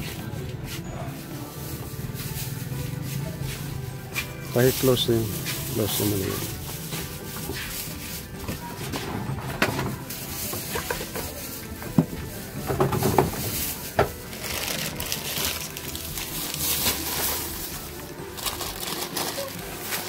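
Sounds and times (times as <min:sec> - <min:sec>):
steady background noise: 0:00.0 - 0:20.0
folding table knocks and scrapes: 0:12.6 - 0:14.2.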